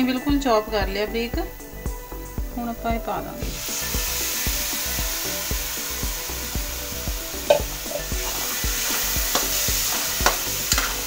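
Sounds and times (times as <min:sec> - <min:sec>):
food sizzling in hot oil: 0:03.1 - 0:11.0
metal spatula scraping pan: 0:07.4 - 0:11.0.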